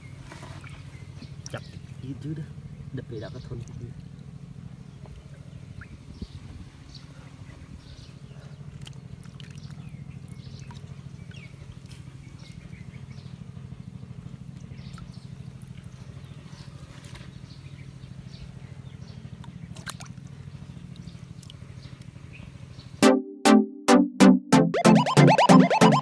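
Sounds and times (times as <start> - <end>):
muddy water splashing: 8.8 - 11.1, 19.6 - 21.6.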